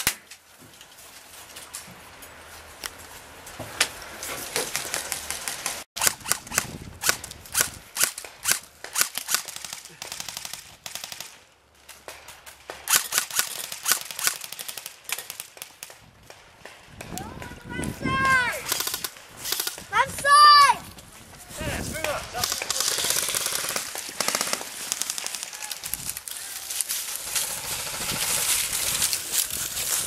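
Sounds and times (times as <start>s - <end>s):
airsoft rifles firing: 22.0s - 26.0s.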